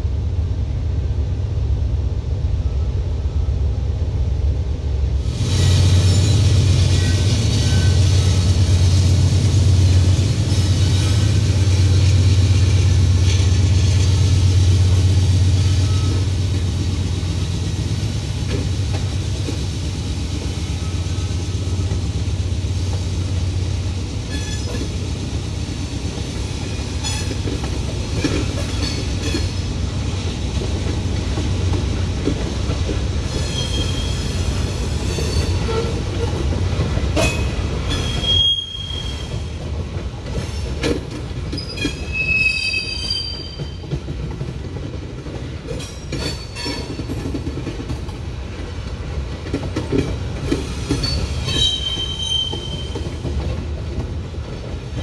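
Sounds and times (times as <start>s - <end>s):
freight train rumbling past: 0.0s - 55.0s
train wheels squealing: 5.5s - 8.9s, 9.8s - 14.8s, 15.4s - 16.7s, 20.4s - 22.3s, 24.2s - 25.0s, 26.5s - 27.5s, 28.2s - 29.6s, 33.2s - 36.4s, 37.2s - 39.6s, 41.5s - 44.0s, 45.7s - 47.2s, 50.5s - 53.2s
wheels clanking over rail joints: 26.4s - 29.8s, 30.5s - 55.0s.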